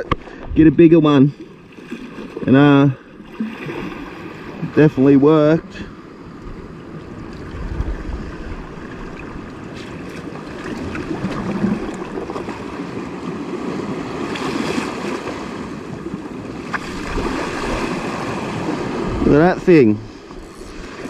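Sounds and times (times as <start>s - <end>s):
wind on microphone: 6.5s - 12.9s, 16.6s - 21.0s
sea water splashing against rocks: 7.0s - 19.1s.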